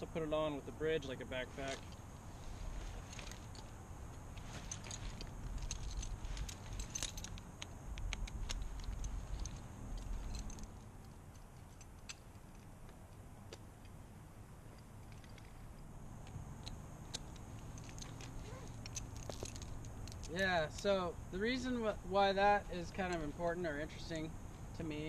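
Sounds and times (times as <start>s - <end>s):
metal hardware clinking: 2.8s - 13.2s, 16.6s - 21.0s.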